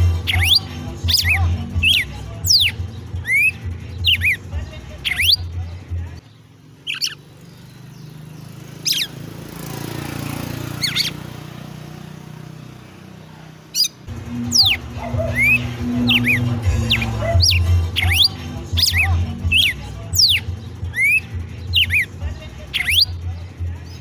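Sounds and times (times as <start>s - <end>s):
bird whistling song: 0.0s - 5.7s, 6.8s - 9.2s, 10.7s - 11.3s, 13.7s - 24.0s.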